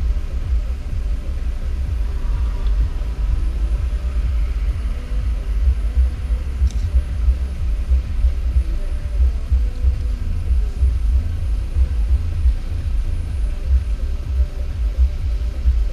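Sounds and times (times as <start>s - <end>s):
car engine idling: 0.0s - 15.9s.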